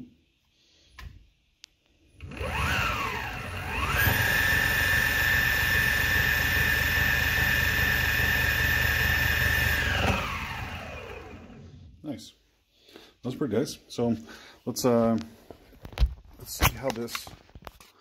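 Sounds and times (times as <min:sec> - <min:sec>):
electric motors whining: 0:02.2 - 0:11.9.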